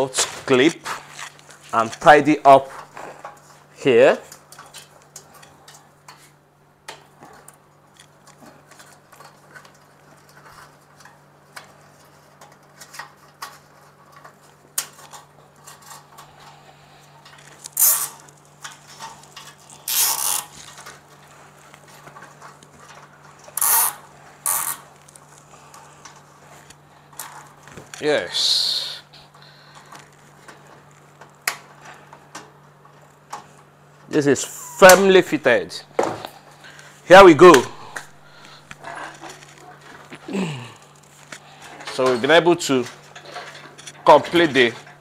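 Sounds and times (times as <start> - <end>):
wires clicking and rustling: 0.0 - 28.4, 29.1 - 35.4, 37.5 - 45.0
cable ties zipping tight: 17.6 - 18.2, 19.7 - 20.7, 23.6 - 24.9.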